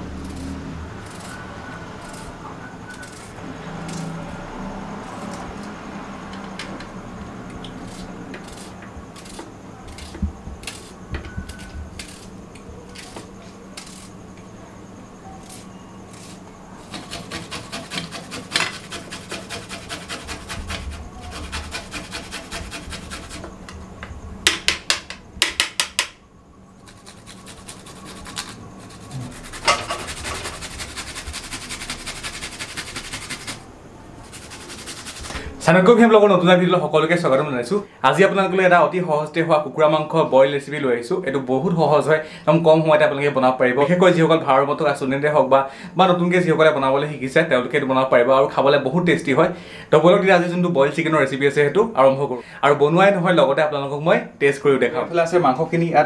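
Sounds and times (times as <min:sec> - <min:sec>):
garlic grating on metal grater: 0:00.0 - 0:04.2, 0:05.0 - 0:05.7, 0:07.6 - 0:14.2, 0:15.4 - 0:23.6, 0:26.8 - 0:33.6, 0:34.2 - 0:35.6.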